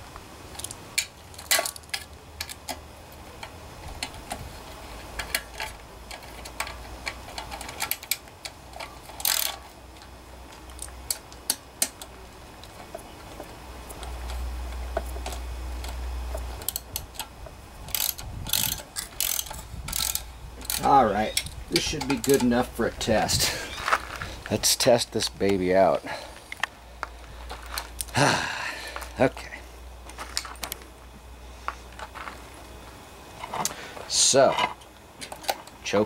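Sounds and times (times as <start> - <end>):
socket wrench clicking: 5.2 - 9.6, 15.0 - 22.5.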